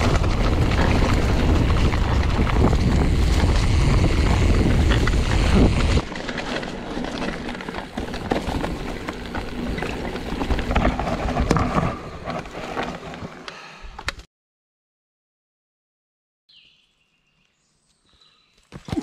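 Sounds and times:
bike knocks and rattles: 0.0 - 13.2
bike tyres rolling over dirt and leaves: 0.0 - 13.7.

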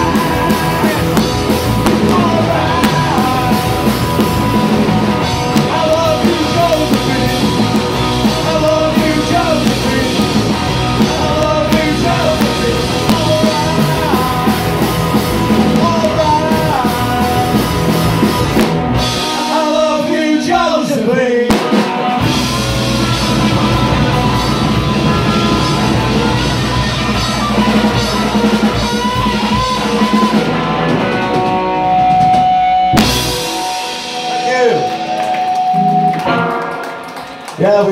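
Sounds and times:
person singing: 0.0 - 18.0, 19.1 - 21.8
punk rock band playing: 0.0 - 37.9
electric guitar gliding in pitch: 22.2 - 37.5.

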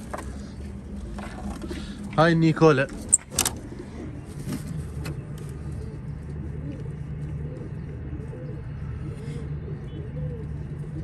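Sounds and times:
pigeons cooing: 0.0 - 11.0
steady low hum: 0.0 - 11.0.

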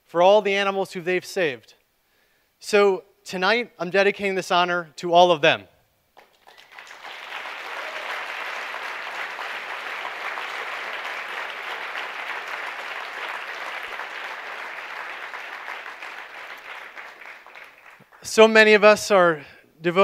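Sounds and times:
audience applauding: 6.2 - 18.3.

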